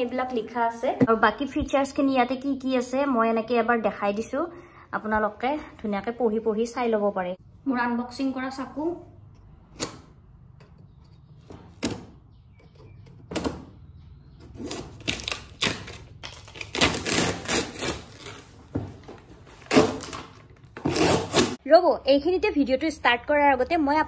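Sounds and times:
knife slitting packing tape: 14.6s - 18.6s, 19.6s - 21.6s
cardboard rustling: 14.6s - 21.6s.

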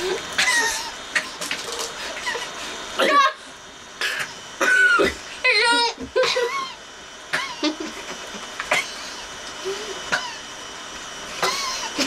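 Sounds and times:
people coughing and gagging: 4.0s - 5.2s, 6.2s - 7.9s, 8.7s - 9.1s, 11.4s - 12.0s.

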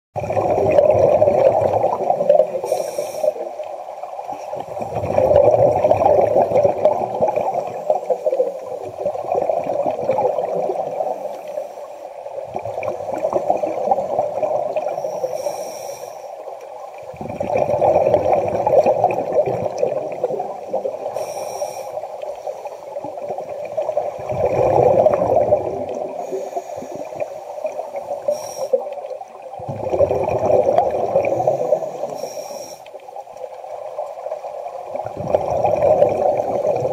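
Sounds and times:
bubbles gurgling underwater: 0.2s - 11.4s, 12.2s - 15.1s, 16.4s - 21.3s, 22.0s - 32.2s, 33.0s - 36.9s
regulator hissing inhalations: 2.6s - 3.6s, 14.9s - 16.4s, 21.1s - 22.9s, 26.2s - 28.9s, 31.2s - 33.0s.

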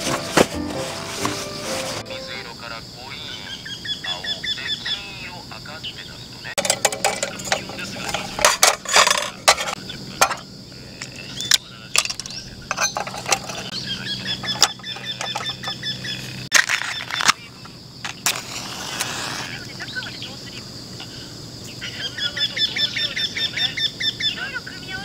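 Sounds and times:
glass and metal clinking on table: 6.6s - 10.4s, 12.0s - 13.7s, 14.4s - 15.8s.

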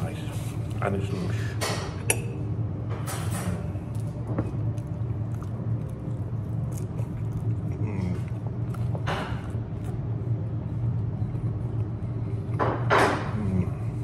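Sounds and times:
low room hum: 0.0s - 14.0s
man biting and chewing: 3.5s - 12.6s.

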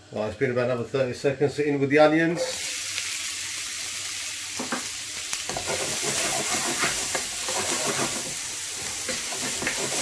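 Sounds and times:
onions sizzling in oil: 2.4s - 10.0s
spatula scraping a pan: 5.5s - 10.0s.

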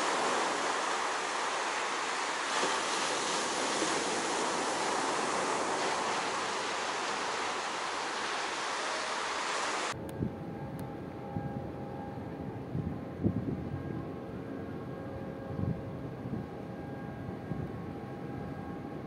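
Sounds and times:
waves rushing: 0.0s - 10.0s
wind: 0.0s - 19.0s.

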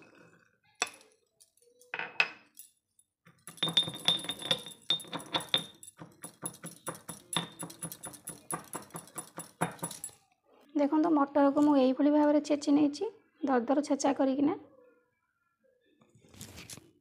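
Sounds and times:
peas rattling into a mortar: 3.3s - 10.2s
stone pestle pounding: 4.9s - 10.1s.

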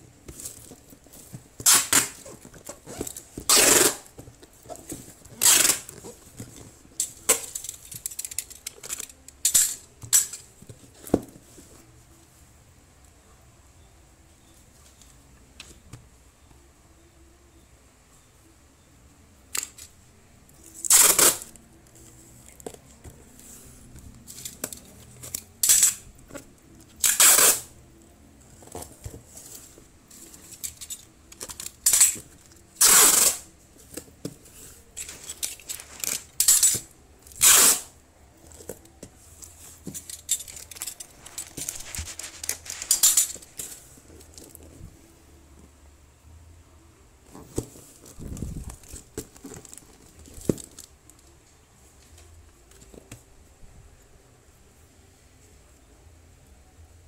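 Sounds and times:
sticker labels ripping: 1.6s - 2.2s, 27.0s - 27.7s, 35.1s - 37.9s.

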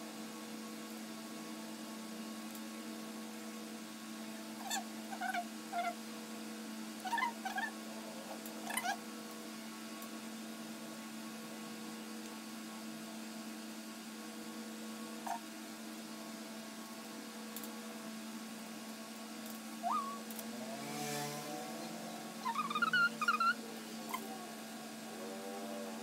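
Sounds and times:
low electrical hum: 0.0s - 26.0s
dog whining: 4.6s - 6.0s, 7.0s - 7.7s, 8.6s - 9.0s, 19.8s - 20.2s, 22.4s - 24.4s.

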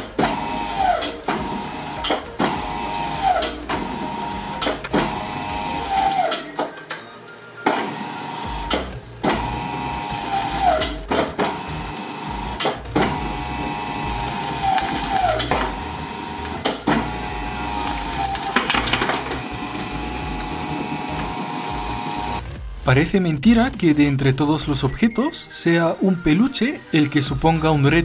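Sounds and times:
shredder tearing plush toy: 0.0s - 6.4s, 8.4s - 22.4s
shredder motor whine: 0.0s - 6.6s, 7.8s - 22.5s
sharp cracks: 8.6s - 22.5s.

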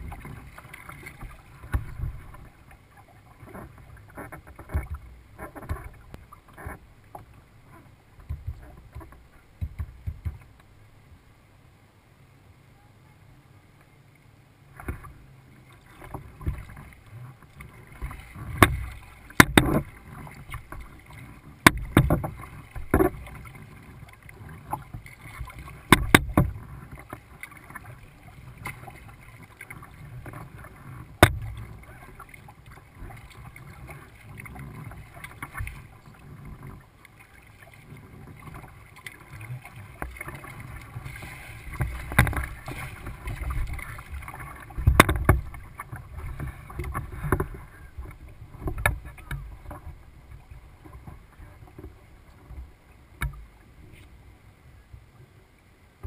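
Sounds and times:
paddle water splashing and lapping: 0.0s - 56.0s
sharp clicks or knocks: 19.4s - 19.8s.

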